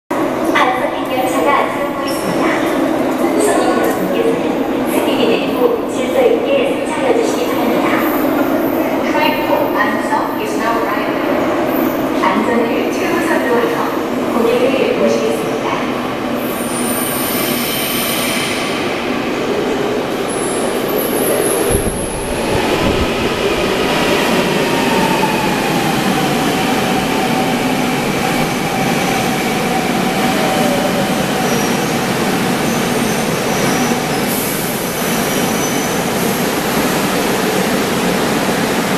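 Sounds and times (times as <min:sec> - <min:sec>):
train rumbling: 0:13.8 - 0:38.9.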